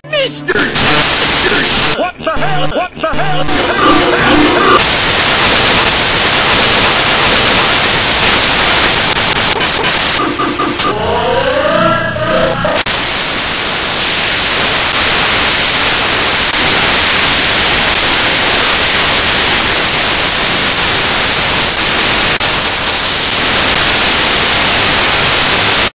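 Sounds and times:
garbled cartoon audio: 0.0 - 4.8, 9.6 - 12.8
loud static hiss: 0.5 - 25.9.

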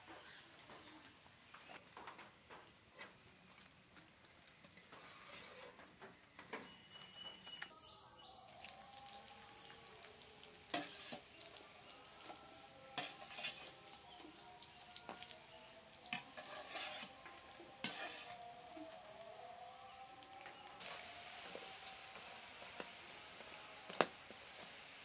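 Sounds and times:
fries sizzling in hot oil: 8.4 - 25.0
metal spoon clinking and scraping: 10.4 - 14.7, 16.0 - 18.4.

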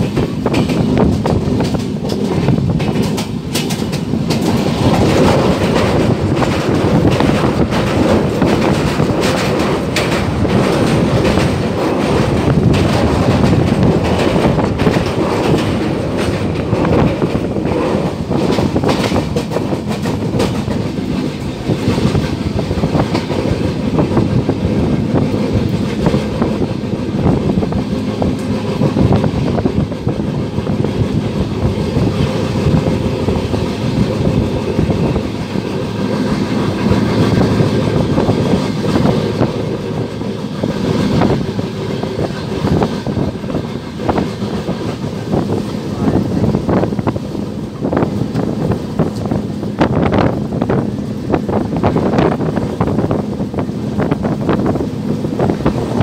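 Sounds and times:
train wheels rumbling on rails: 0.0 - 56.0
wheels clacking over rail joints: 0.0 - 56.0.

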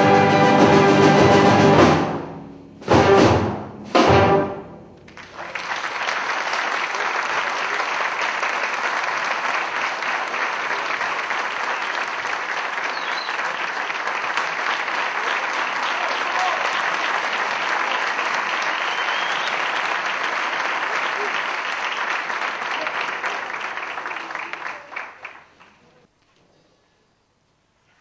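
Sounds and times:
wind band chords: 0.0 - 5.1
audience applause: 5.1 - 26.1.

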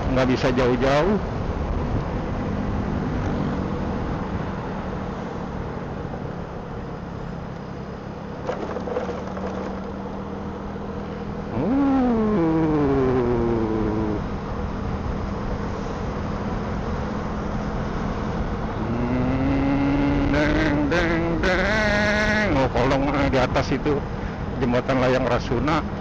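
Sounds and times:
road noise: 0.0 - 26.0
motorcycle engine: 8.2 - 15.2, 16.4 - 22.5.

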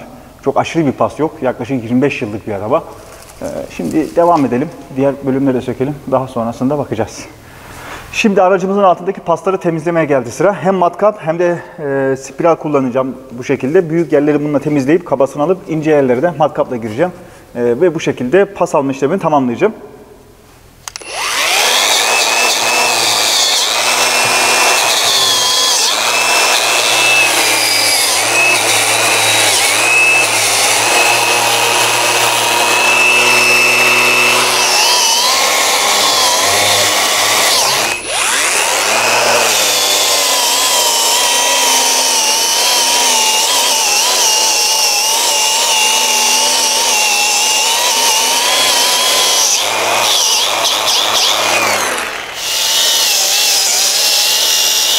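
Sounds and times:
drill with wire brush on steel: 20.9 - 54.9
angle grinder wire brushing steel: 21.0 - 54.9.

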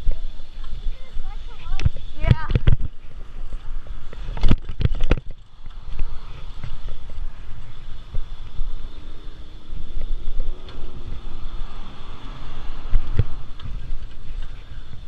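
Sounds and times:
wind buffeting microphone: 0.0 - 15.0
bicycle knocks and rattles: 1.6 - 3.0, 4.0 - 11.4.

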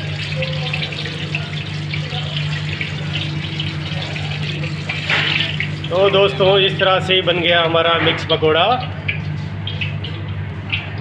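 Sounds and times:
food sizzling in hot oil: 0.0 - 6.5.

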